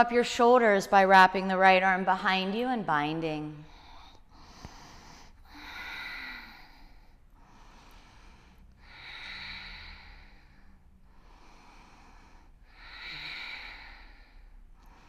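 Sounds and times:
faint room hum: 0.0 - 15.0
woman breathing deeply: 3.6 - 15.0.

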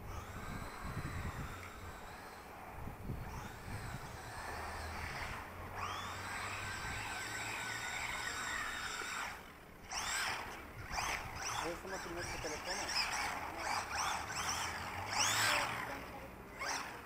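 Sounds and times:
toy car electric motor whining: 0.0 - 17.0.

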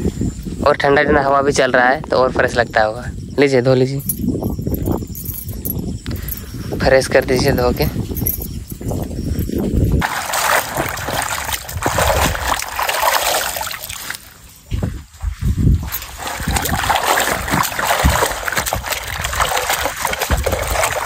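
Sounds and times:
leaves splashing in bucket of water: 10.0 - 14.7, 15.8 - 21.0.

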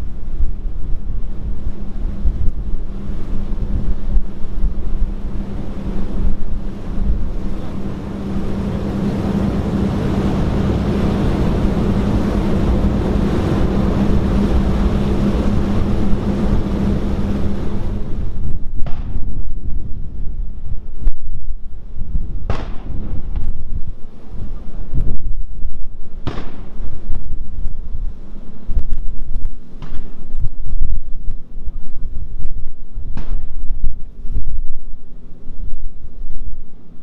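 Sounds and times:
low boat engine hum: 0.0 - 37.0
wind buffeting microphone: 0.0 - 37.0
water rushing: 4.4 - 18.5.

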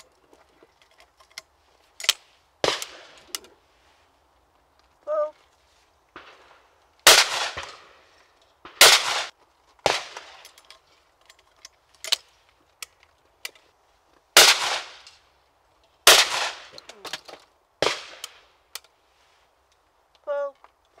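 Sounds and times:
shotgun shots: 2.6 - 3.3, 6.2 - 8.0, 8.6 - 10.4, 14.4 - 15.1, 16.0 - 16.8, 17.8 - 18.5.

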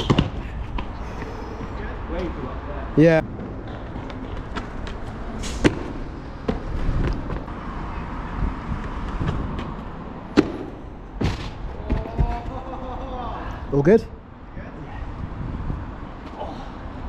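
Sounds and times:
hard landing on paving slabs: 0.0 - 1.0, 3.2 - 7.5, 8.8 - 12.7
outdoor street noise: 0.0 - 17.0.

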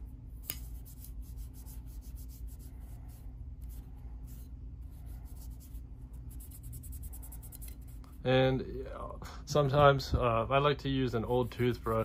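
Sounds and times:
cloth pad wiping metal: 11.0 - 12.0.

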